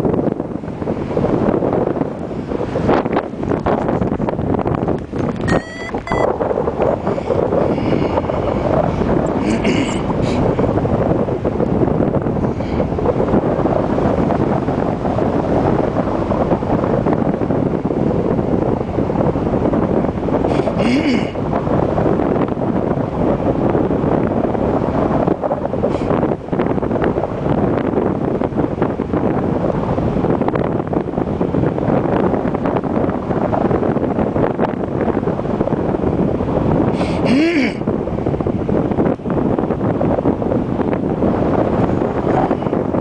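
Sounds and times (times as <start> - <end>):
wind buffeting microphone: 0.0 - 43.0.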